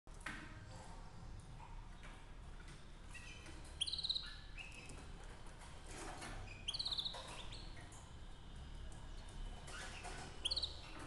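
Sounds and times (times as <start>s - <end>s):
canary singing: 3.1s - 5.1s, 5.9s - 8.0s, 9.1s - 11.0s.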